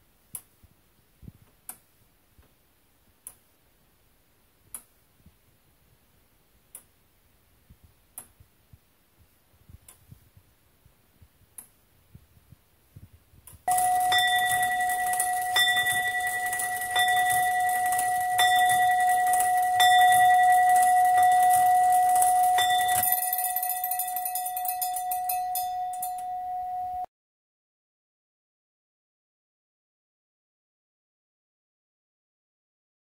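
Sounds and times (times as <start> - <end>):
clock bell striking: 13.7 - 27.1.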